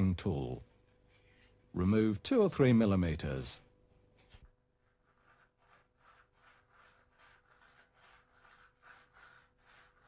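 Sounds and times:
tool scraping grout from tiles: 4.3 - 10.0.

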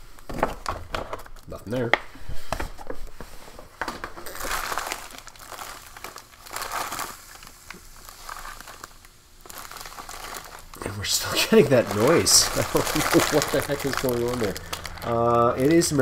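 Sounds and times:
plastic bag crinkling: 4.1 - 16.0
contents shifting inside bag: 4.2 - 16.0.

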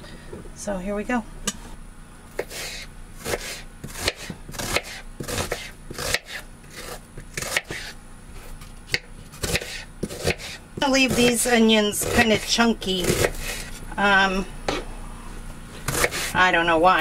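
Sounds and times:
knife slicing onion on cutting board: 2.4 - 13.8, 15.8 - 16.4.

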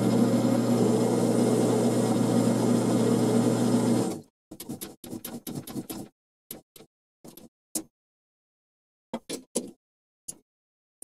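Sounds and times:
metal lathe running: 0.0 - 4.1.

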